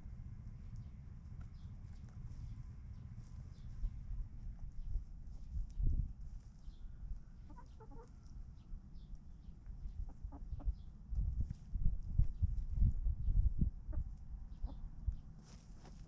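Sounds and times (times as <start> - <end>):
chickens clucking: 7.4 - 8.3, 9.9 - 10.8, 13.8 - 14.8.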